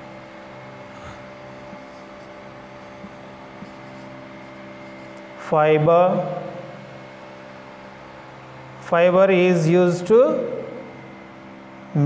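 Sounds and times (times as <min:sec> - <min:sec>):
machine hum: 0:00.0 - 0:12.0
marker scratching on whiteboard: 0:01.6 - 0:05.3.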